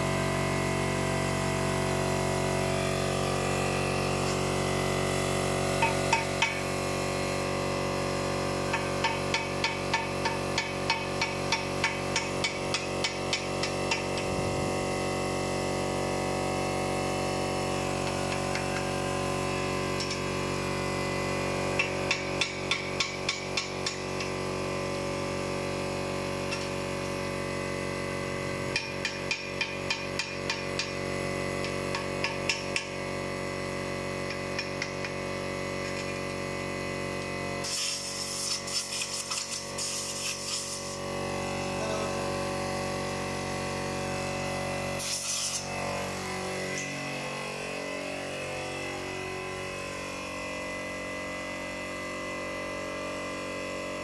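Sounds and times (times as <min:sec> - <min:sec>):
harsh high hissing noise: 0:37.6 - 0:41.1, 0:45.0 - 0:45.7.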